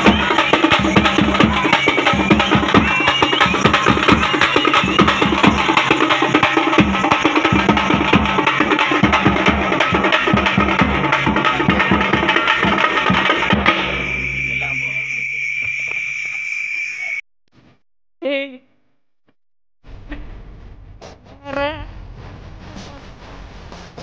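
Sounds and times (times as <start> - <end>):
steady high tone: 0.0 - 8.0, 13.6 - 17.2
festival drums played with sticks: 0.0 - 15.4
low hum: 18.7 - 24.0.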